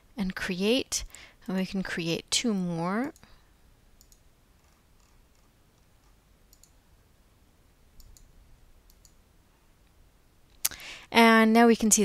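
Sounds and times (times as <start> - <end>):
computer mouse clicks: 4.0 - 6.8, 8.0 - 9.2.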